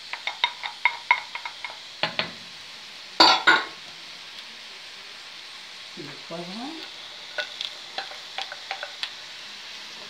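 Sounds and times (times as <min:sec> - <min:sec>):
spatula clatter: 0:00.0 - 0:02.4, 0:07.2 - 0:09.2
vegetables sizzling: 0:00.0 - 0:10.0.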